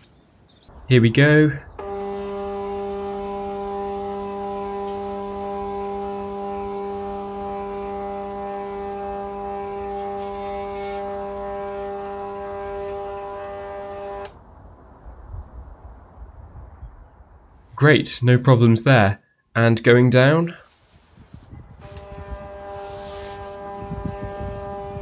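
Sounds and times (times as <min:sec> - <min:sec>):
stepper motor humming: 0:01.7 - 0:14.4, 0:21.8 - 0:25.0.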